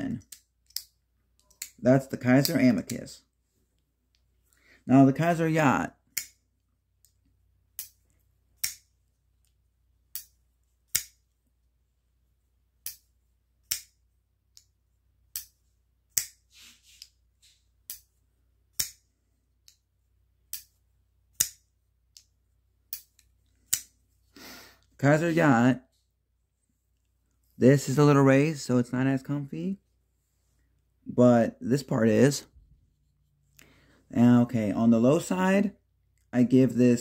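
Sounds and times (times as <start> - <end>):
folding knife blade clicking: 10.9 - 11.2, 13.6 - 14.7, 21.4 - 22.3.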